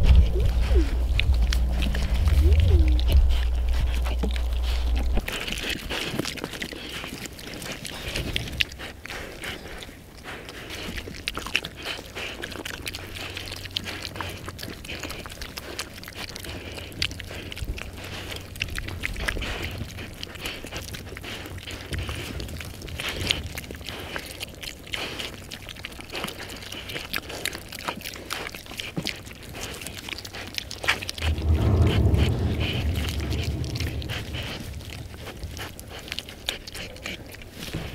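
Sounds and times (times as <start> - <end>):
low rumble: 0.0 - 6.6, 17.1 - 20.5, 30.8 - 37.9
pigs crunching and chewing: 0.0 - 37.9.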